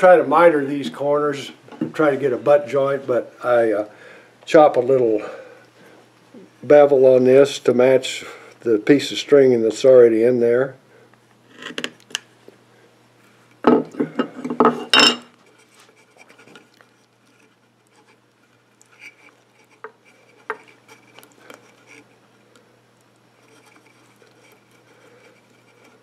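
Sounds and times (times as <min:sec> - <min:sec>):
faint ticks and scratches: 0:15.3 - 0:26.0.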